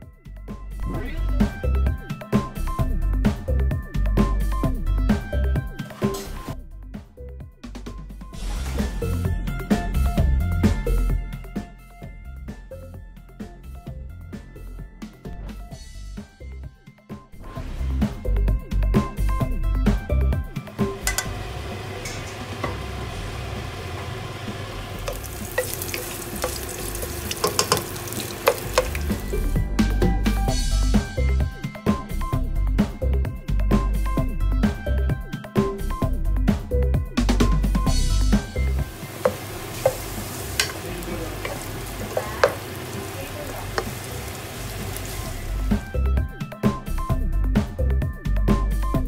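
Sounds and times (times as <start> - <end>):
music with drum beat: 0.0 - 17.3, 17.9 - 21.3, 24.9 - 49.0
food sizzling in hot oil: 20.9 - 29.6, 38.0 - 45.9
wooden spoon knocking and scraping pan: 25.0 - 29.3, 38.4 - 45.5.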